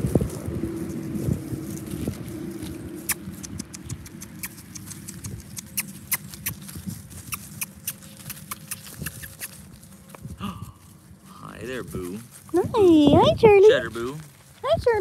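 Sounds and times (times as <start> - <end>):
puppies moving clicks and rustles: 0.2 - 11.1.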